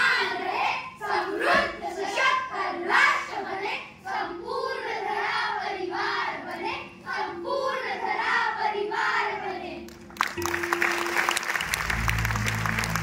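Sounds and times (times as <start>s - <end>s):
children singing together: 0.0s - 9.8s
audience applause: 10.2s - 13.0s.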